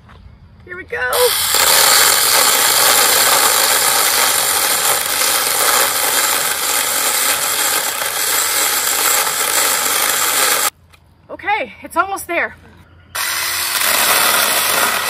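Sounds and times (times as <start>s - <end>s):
mini chainsaw cutting tree limb: 1.2s - 10.7s, 13.2s - 15.0s.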